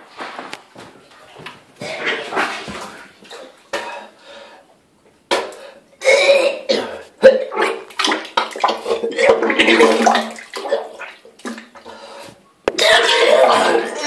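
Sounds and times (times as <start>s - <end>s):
rustling and shuffling: 0.0s - 3.6s
man retching: 5.3s - 7.9s, 8.8s - 11.6s, 12.7s - 13.9s
splashing into toilet water: 7.5s - 11.8s.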